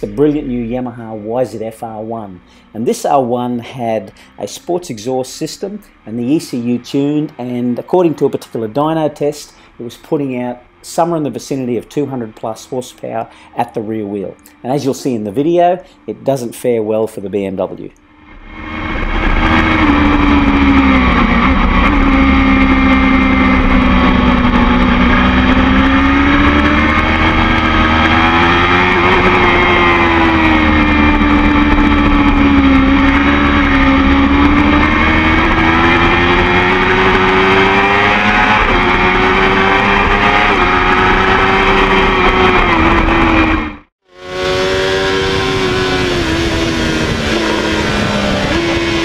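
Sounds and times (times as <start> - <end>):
motorcycle engine at high revs: 18.1 - 49.0
wind on microphone: 44.9 - 49.0.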